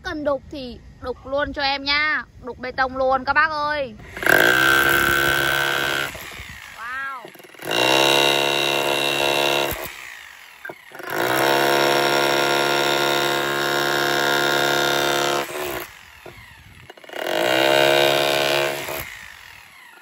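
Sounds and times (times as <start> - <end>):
rotary hammer chiselling concrete: 4.0 - 20.0.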